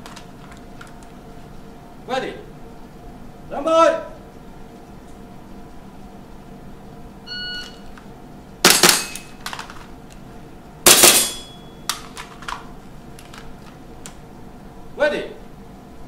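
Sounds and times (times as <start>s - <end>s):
shot timer beep: 7.3s - 7.8s
airsoft pistol shots: 8.6s - 9.3s, 10.9s - 11.5s
airsoft rifle shots: 8.6s - 9.3s, 10.9s - 11.5s.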